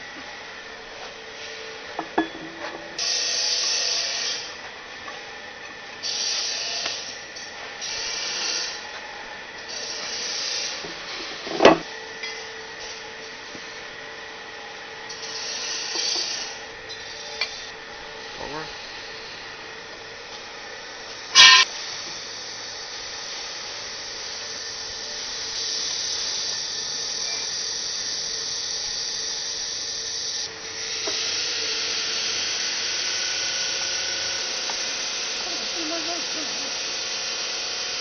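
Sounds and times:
metal parts scraping and rubbing: 0:21.4 - 0:21.7.

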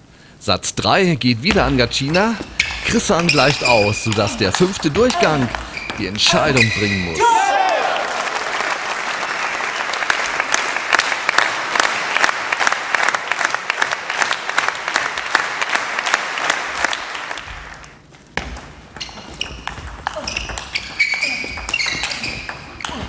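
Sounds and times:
audience applauding: 0:04.1 - 0:17.8.

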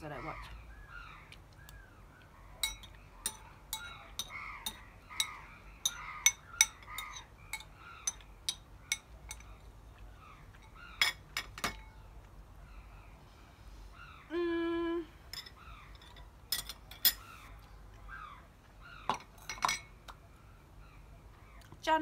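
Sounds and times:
spoon clinking against bowl: 0:02.6 - 0:09.6.

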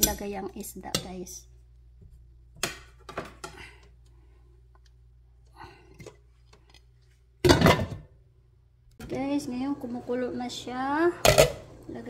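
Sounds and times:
low kitchen hum: 0:00.0 - 0:12.0.

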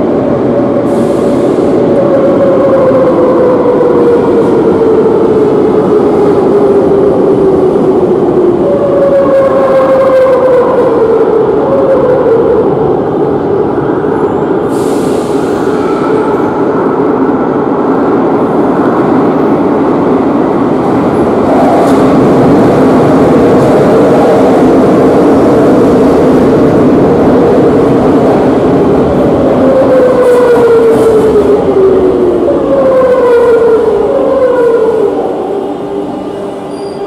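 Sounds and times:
train wheels rumbling on rail: 0:00.0 - 0:37.0
train brakes whining: 0:14.6 - 0:16.5, 0:36.1 - 0:37.0.

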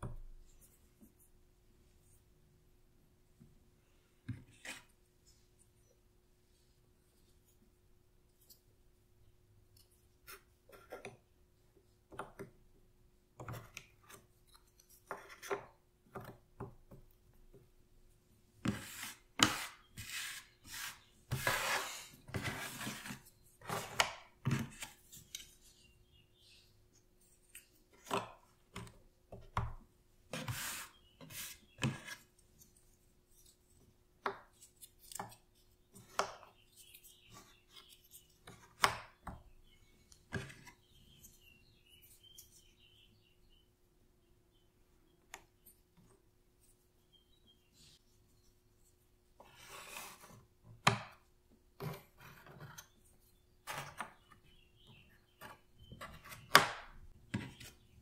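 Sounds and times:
puzzle pieces rustling and scraping: 0:18.7 - 0:24.0.

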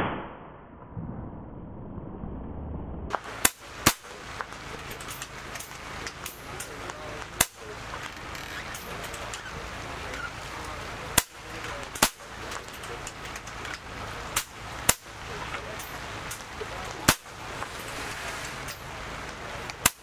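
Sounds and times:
air rifle shots: 0:03.1 - 0:08.0, 0:10.6 - 0:17.7, 0:19.7 - 0:20.0
steady background noise: 0:03.1 - 0:20.0.

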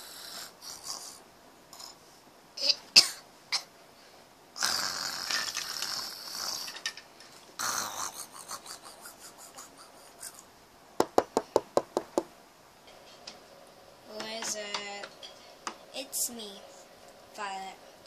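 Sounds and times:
knocking on door: 0:11.0 - 0:12.3.

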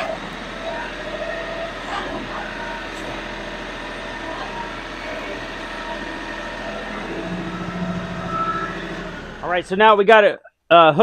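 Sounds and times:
loader hydraulics: 0:00.0 - 0:09.5
tractor diesel engine running: 0:00.0 - 0:09.9.

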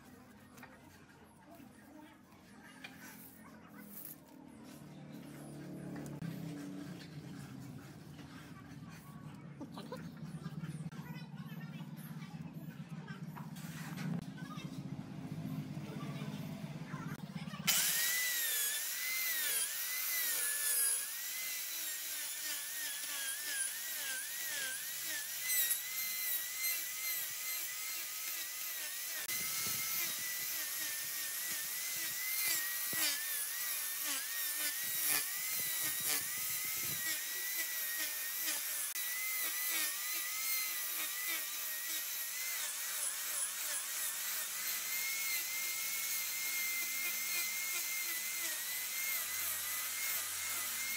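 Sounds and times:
angle grinder cutting wood: 0:02.4 - 0:09.0, 0:16.9 - 0:50.9.

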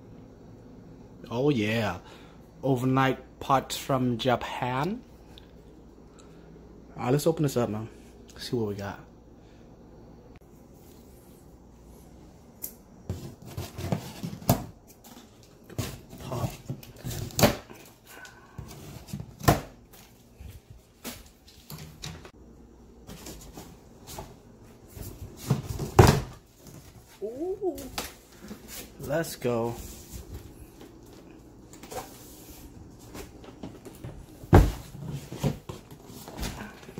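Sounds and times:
cardboard box knocks and thumps: 0:34.0 - 0:35.9.

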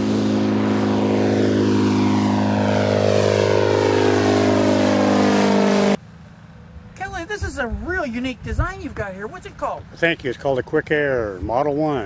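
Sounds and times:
propeller aircraft flying overhead: 0:00.0 - 0:07.4.

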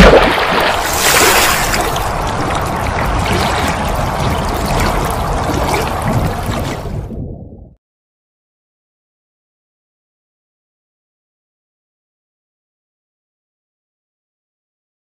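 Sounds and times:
rushing water: 0:00.0 - 0:07.2.

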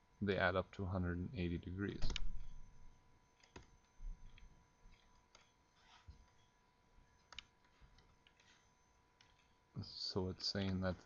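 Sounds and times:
computer mouse clicks: 0:02.0 - 0:02.6, 0:03.4 - 0:06.5, 0:07.2 - 0:09.6.

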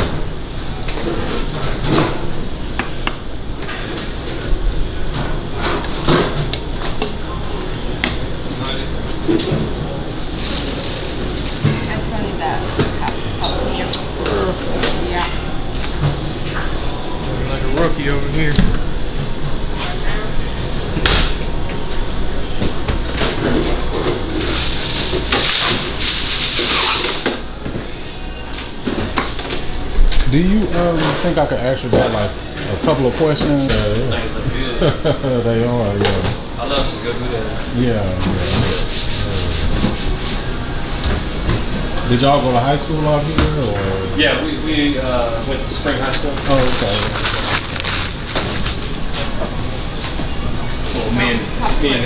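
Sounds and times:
steady background noise: 0:00.0 - 0:52.0
rustling and scraping: 0:09.1 - 0:12.2, 0:23.3 - 0:27.3, 0:45.6 - 0:50.2.

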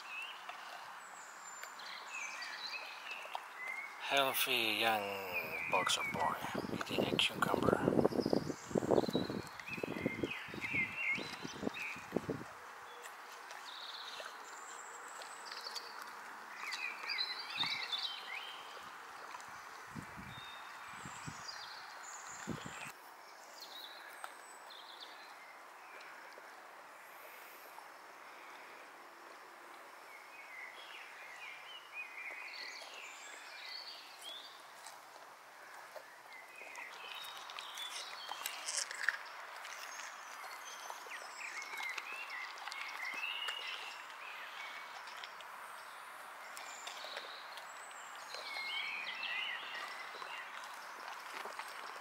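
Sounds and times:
birds chirping: 0:00.0 - 0:12.2, 0:36.1 - 0:45.2
dog crunching cucumber: 0:37.1 - 0:40.4.

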